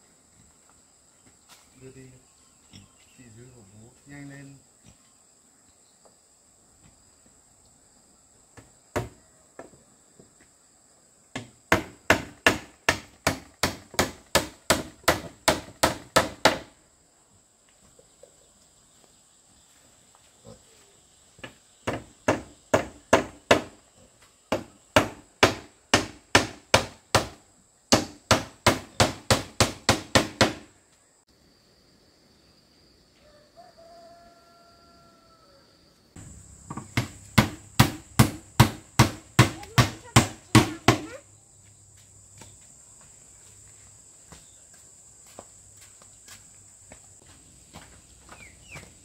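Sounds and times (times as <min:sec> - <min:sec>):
high insect drone: 0:00.0 - 0:49.0
hammer driving nails into wood: 0:11.4 - 0:16.7, 0:21.8 - 0:23.8, 0:24.5 - 0:30.7, 0:36.7 - 0:41.1.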